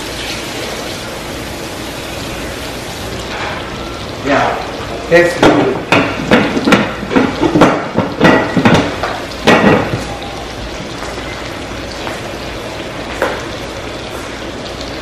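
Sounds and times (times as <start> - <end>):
bacon sizzling in a pan: 0.0 - 15.0
metal pot lid clanking: 6.0 - 10.0.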